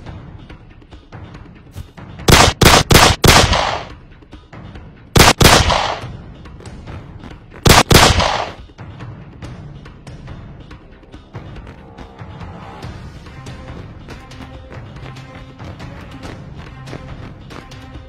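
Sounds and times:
faint background music: 0.0 - 18.0
gunshots: 2.3 - 4.0, 5.2 - 6.2, 7.6 - 8.7.

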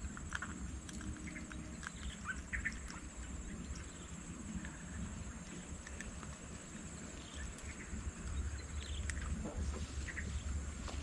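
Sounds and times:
bird chirps: 9.9 - 10.6.

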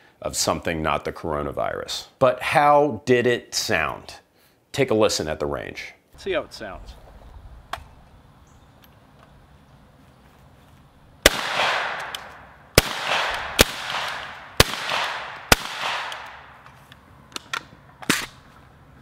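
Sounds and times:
suppressed shotgun shots: 11.2 - 16.6.

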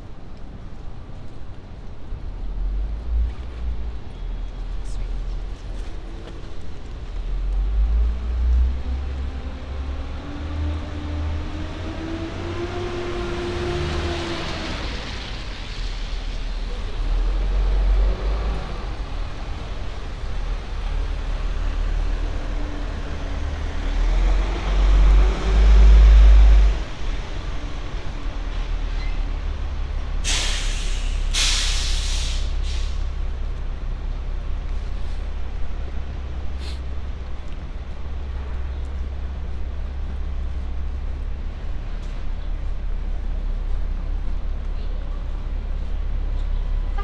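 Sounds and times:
low traffic rumble: 0.0 - 47.0
tyres hissing on wet road: 7.2 - 44.5
sharp loud hisses: 30.2 - 33.1.

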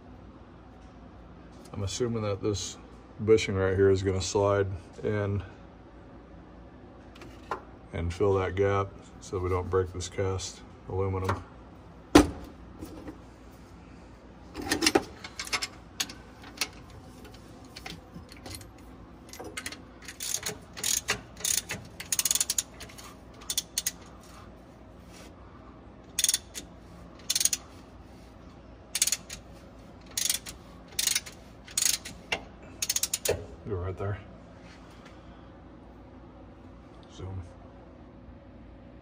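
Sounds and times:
ratchet wrench clicking: 19.3 - 24.1, 26.2 - 27.6, 29.0 - 29.4, 30.0 - 33.4.

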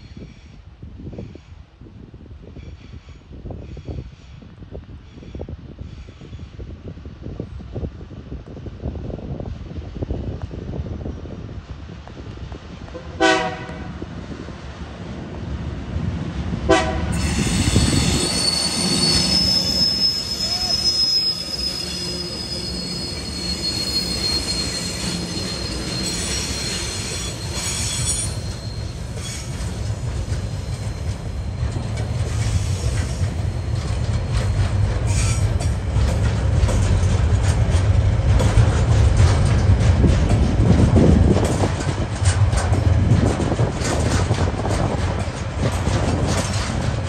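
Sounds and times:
low train rumble: 0.0 - 47.0
train wheels squealing: 17.1 - 37.1.

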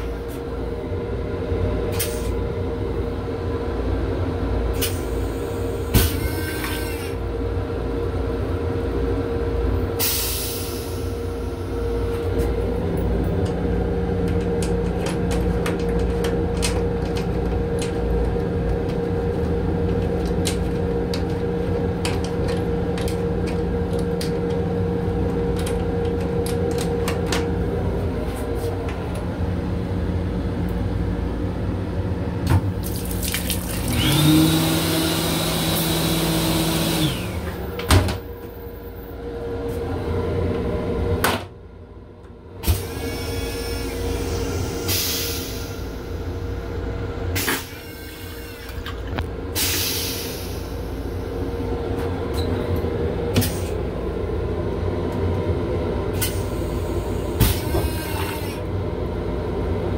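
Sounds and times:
railcar hum: 0.0 - 59.9
water running into sink: 32.8 - 34.0.

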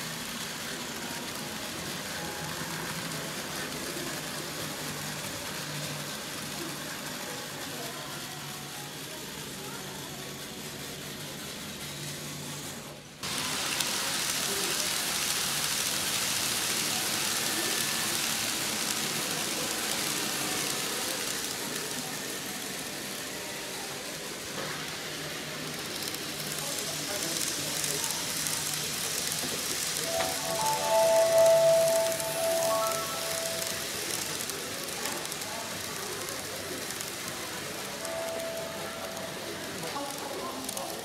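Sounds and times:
indistinct background chatter: 0.0 - 41.0
model train running on track: 0.0 - 41.0
sustained musical tones: 30.0 - 34.1, 38.0 - 39.7.

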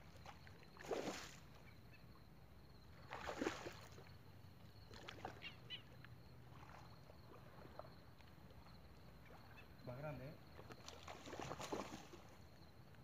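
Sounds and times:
fish splashing in water: 0.0 - 1.6, 3.0 - 4.2, 4.8 - 8.1, 10.5 - 12.4.

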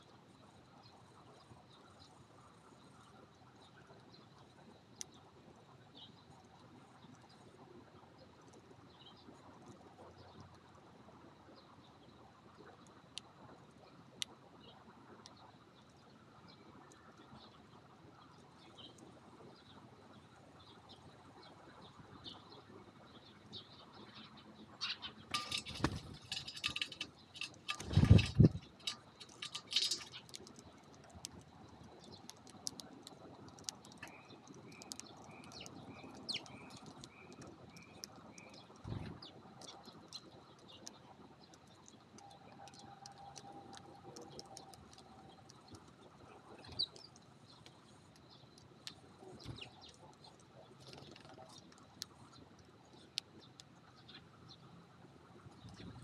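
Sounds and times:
sparrows chirping: 22.2 - 30.5, 33.8 - 54.7
birds pecking clicks: 24.8 - 53.8
wing flutter and thumps: 25.3 - 30.3.

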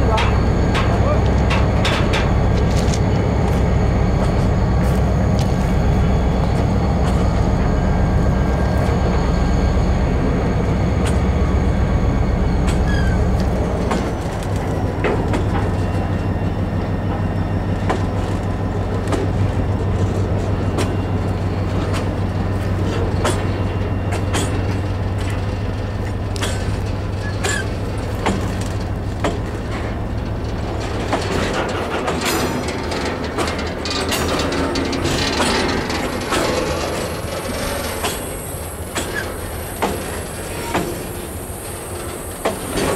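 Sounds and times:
freight train rumbling past: 0.0 - 42.9
wheels clacking over rail joints: 0.0 - 42.9
high wheel squeals: 10.6 - 13.8.

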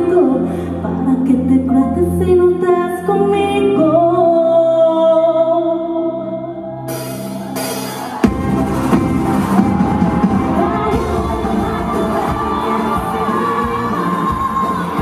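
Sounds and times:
woman singing into a microphone: 0.0 - 6.7, 10.2 - 15.0
pop backing track with bass: 6.8 - 15.0.

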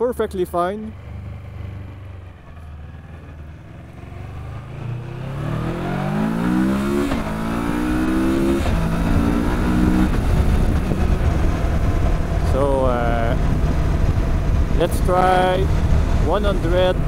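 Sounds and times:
motorcycle engine accelerating: 0.0 - 17.0
road rumble: 0.0 - 17.0
wind noise: 5.6 - 17.0.

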